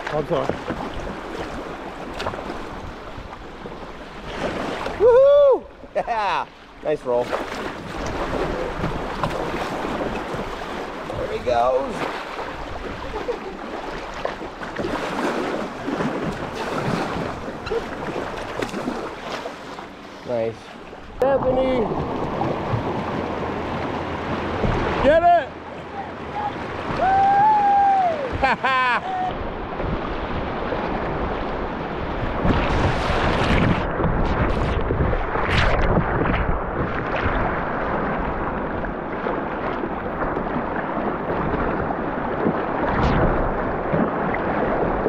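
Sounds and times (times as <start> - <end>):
paddle strokes in water: 0.0 - 5.1, 5.8 - 45.0
whitewater splashing and gurgling: 0.0 - 45.0
whitewater rushing: 21.2 - 28.4
wind buffeting microphone: 26.3 - 45.0.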